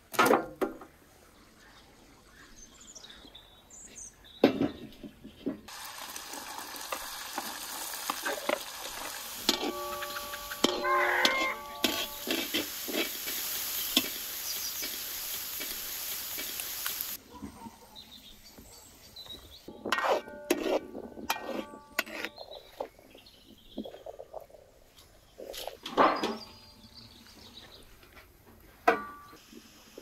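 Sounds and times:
food sizzling in a pan: 5.7 - 17.2.

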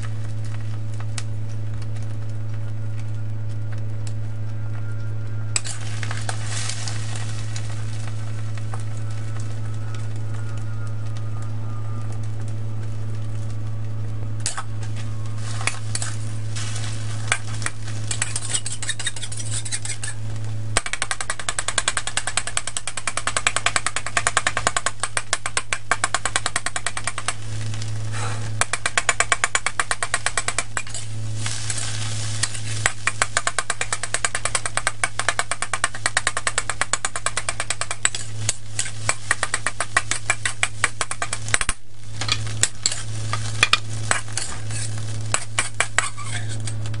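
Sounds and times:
light sizzle: 0.0 - 47.0
steady low hum: 0.0 - 47.0
metal spatula scraping wok: 5.6 - 7.6, 15.4 - 20.2, 30.8 - 32.8, 38.1 - 40.2, 42.2 - 46.8.

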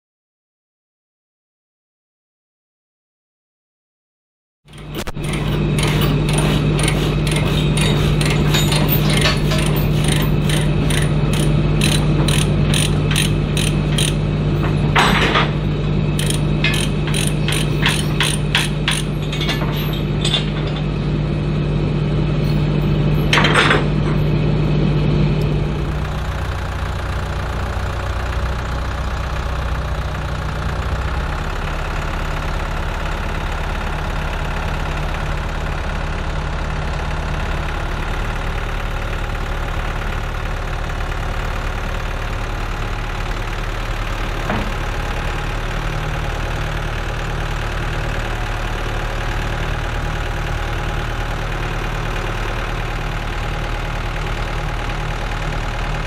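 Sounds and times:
ratchet clicking rapidly: 4.7 - 14.2, 16.2 - 19.4
engine idling: 4.7 - 56.0
chain rattling: 4.8 - 14.2.

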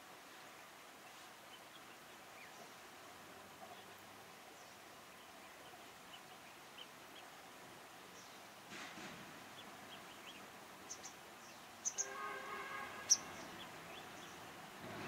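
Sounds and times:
bird chirps: 9.6 - 14.4.

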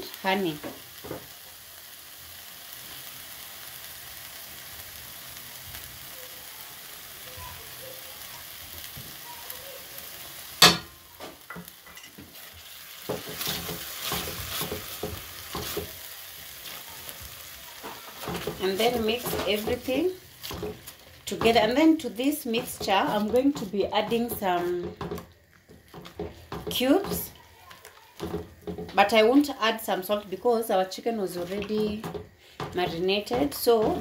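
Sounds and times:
tomato sauce sizzling in pan: 0.0 - 34.0
spatula scraping pan: 11.6 - 29.2, 31.2 - 34.0.

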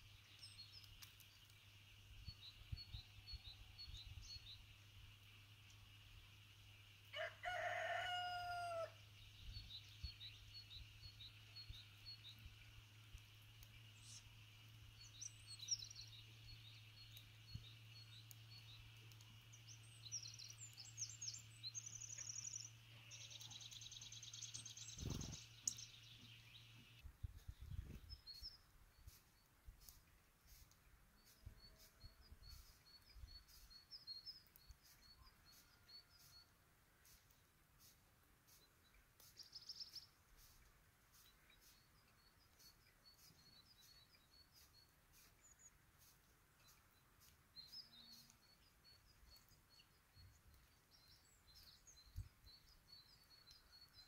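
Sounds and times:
small birds chirping: 0.0 - 54.0
rooster crowing: 7.1 - 9.0.

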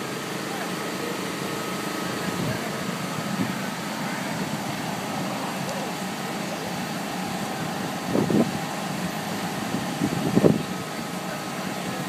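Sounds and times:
electric blower fan running: 0.0 - 12.0.

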